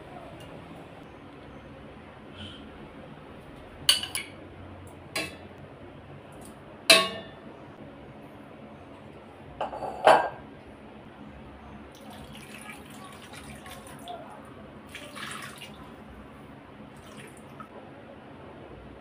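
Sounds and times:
ladle clinking against metal pot: 5.2s - 5.4s, 6.9s - 7.4s.

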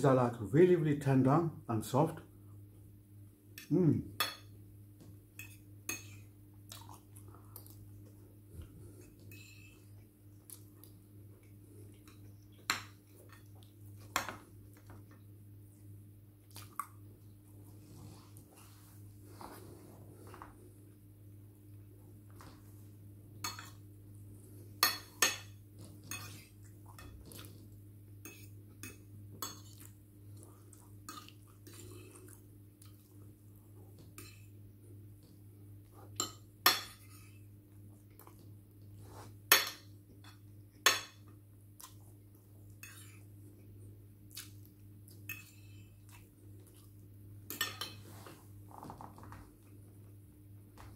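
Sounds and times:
cutlery clinking against dishes: 24.8s - 27.2s, 47.5s - 48.1s.

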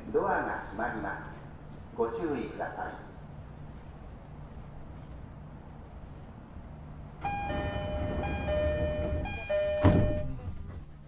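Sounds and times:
low steady train hum: 0.0s - 11.0s
two-tone door chime: 7.2s - 10.4s.

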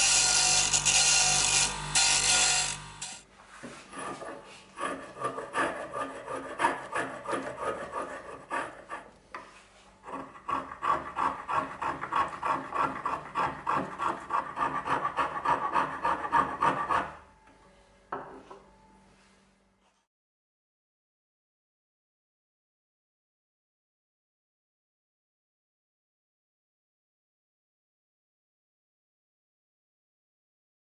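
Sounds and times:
hand plane scraping wood: 0.0s - 17.2s.

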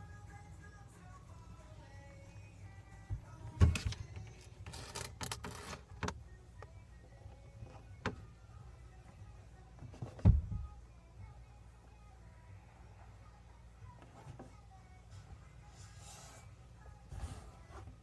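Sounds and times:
faint television music: 0.0s - 18.0s
dull knocks and bumps: 10.0s - 10.7s.

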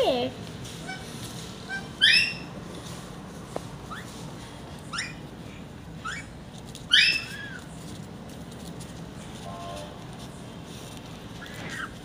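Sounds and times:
parrot squawking: 1.7s - 2.5s, 4.9s - 5.2s.

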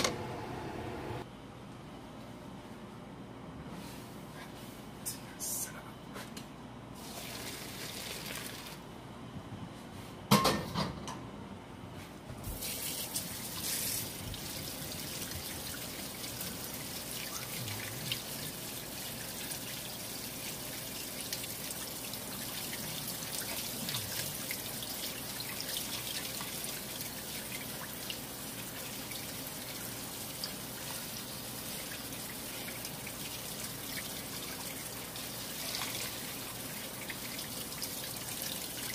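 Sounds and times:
faucet water splashing on pasta: 12.6s - 38.9s.

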